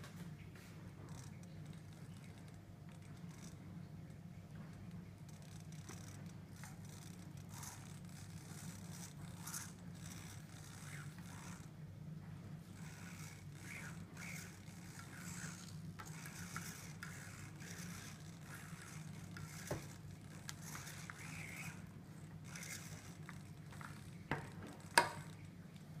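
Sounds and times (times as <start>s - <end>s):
scraping and rustling of gear: 12.6s - 26.0s.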